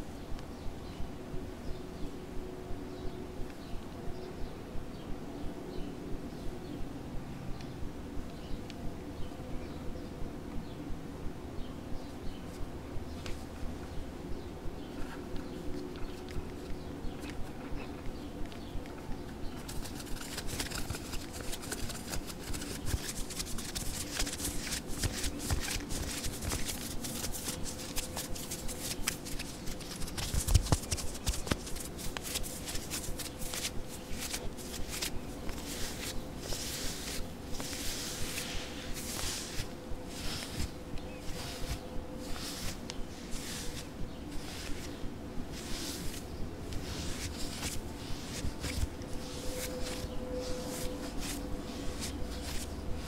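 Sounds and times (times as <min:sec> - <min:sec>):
satin rustling over lens: 0:18.6 - 0:53.0
fingertips tapping on camera lens: 0:19.6 - 0:36.2.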